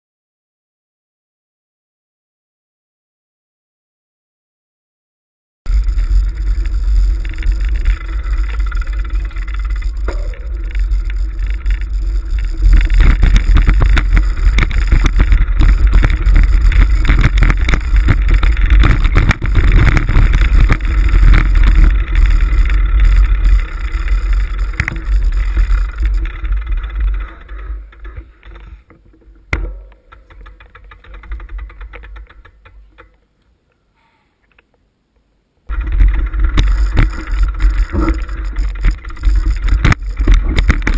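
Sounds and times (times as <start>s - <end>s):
wind buffeting: 5.7s - 28.7s
rattling vibration: 5.7s - 33.2s, 35.7s - 40.9s.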